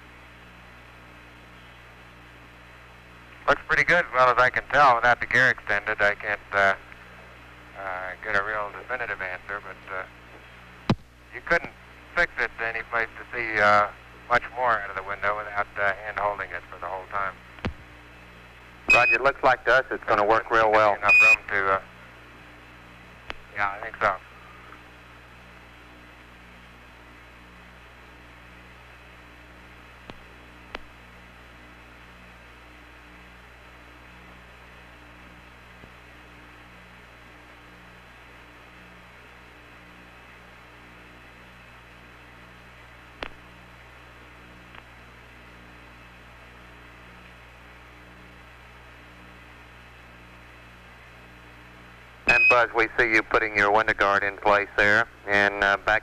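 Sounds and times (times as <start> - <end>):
radio channel hum and hiss: 0.0 - 56.0
faint low pulsing tone: 18.9 - 19.2.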